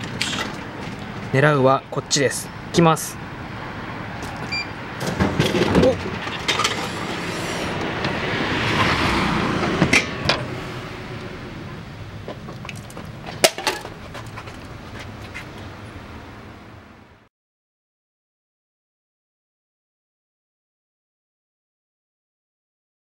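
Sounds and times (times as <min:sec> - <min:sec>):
vending machine beep: 0:04.4 - 0:04.8.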